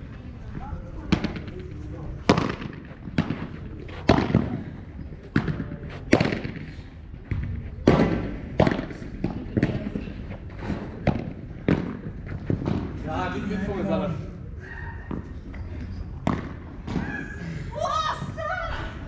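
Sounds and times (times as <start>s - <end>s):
ball struck by rackets: 2.2s - 13.0s, 16.2s - 17.0s.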